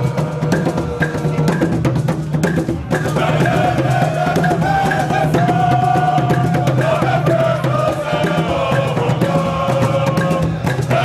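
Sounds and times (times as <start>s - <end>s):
fast drumming on large drums: 0.0s - 11.0s
group of voices chanting: 3.0s - 11.0s.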